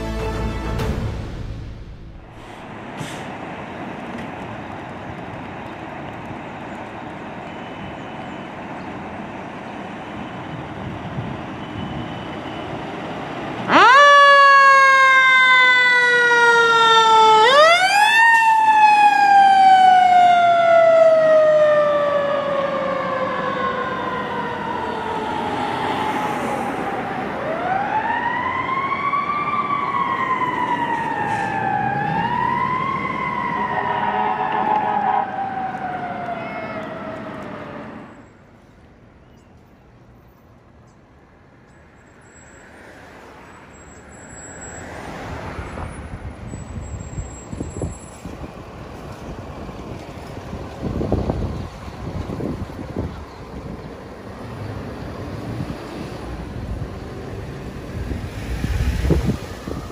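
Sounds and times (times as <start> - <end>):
fire engine siren wailing: 10.0 - 38.5, 43.7 - 59.9.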